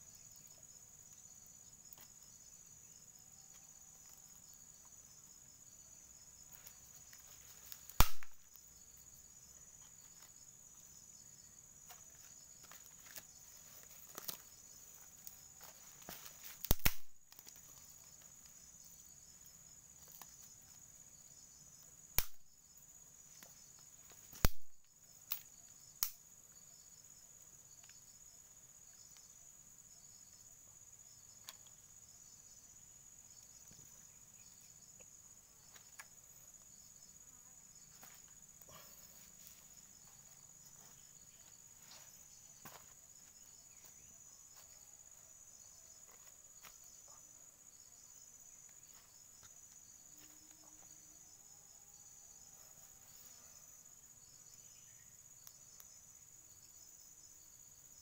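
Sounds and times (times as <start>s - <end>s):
insects chirring: 0.0s - 58.0s.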